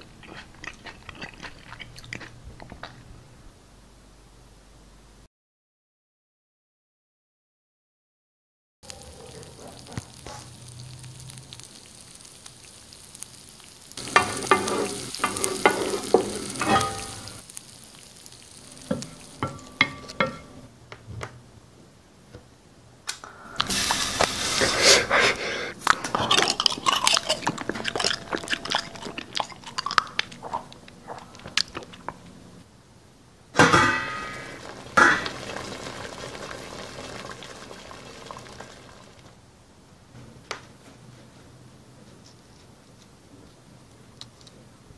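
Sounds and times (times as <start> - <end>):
food sizzling: 8.8 - 20.7, 23.3 - 32.1, 33.6 - 39.4
utensil stirring in pot: 9.7 - 20.5, 23.6 - 30.7.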